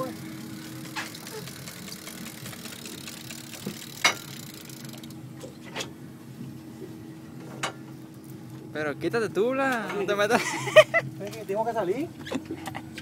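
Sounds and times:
outboard motor idling: 0.0 - 5.6.

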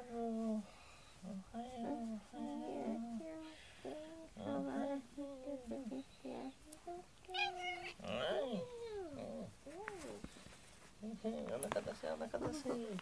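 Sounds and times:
cat meowing: 7.3 - 8.0.

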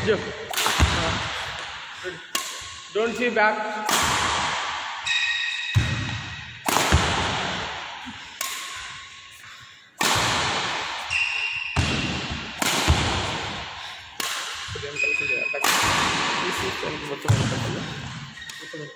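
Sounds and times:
racket hitting shuttlecock: 0.4 - 2.9, 3.8 - 9.1, 10.0 - 18.6
sneakers squeaking on court floor: 11.0 - 13.4, 14.6 - 15.7, 16.6 - 18.9.

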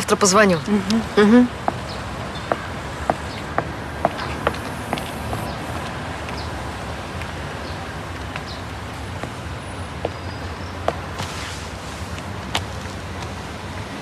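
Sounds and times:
low vehicle rumble: 0.6 - 14.0.

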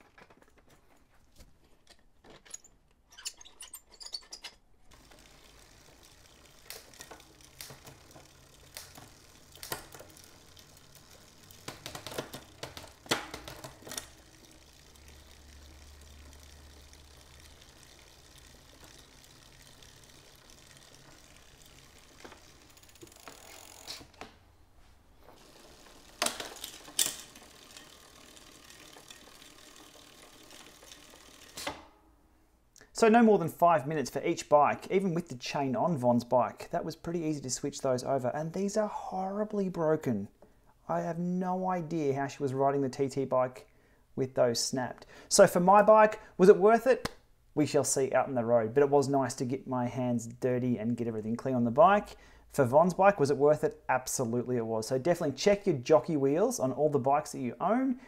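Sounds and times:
light mechanical clicks and rattles: 0.0 - 24.4, 25.3 - 31.8
bicycle chain running through derailleur: 4.2 - 24.2, 25.2 - 31.8.

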